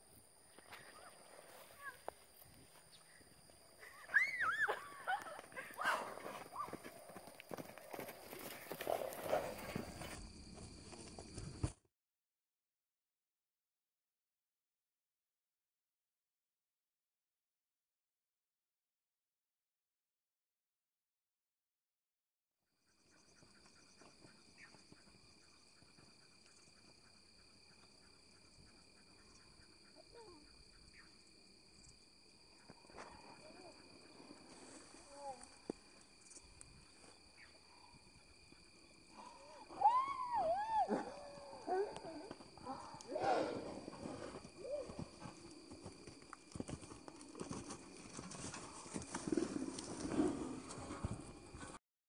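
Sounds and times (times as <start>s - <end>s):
insects droning: 0.0s - 11.8s, 22.8s - 51.8s
horse hoofbeats on grass: 5.5s - 11.8s, 43.9s - 51.8s.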